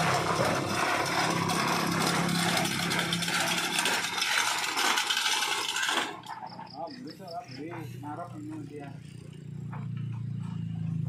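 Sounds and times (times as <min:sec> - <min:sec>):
tool scraping metal: 0:00.0 - 0:06.8.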